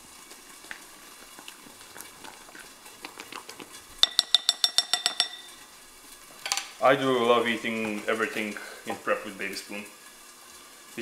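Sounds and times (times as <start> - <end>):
spatula clinking against glass bowl: 4.0 - 5.6.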